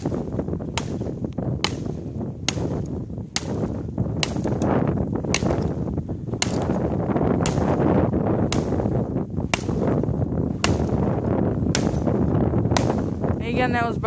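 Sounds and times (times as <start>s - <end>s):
axe chopping into frozen log: 0.0s - 5.8s, 6.4s - 8.9s, 9.5s - 10.0s, 10.6s - 13.1s.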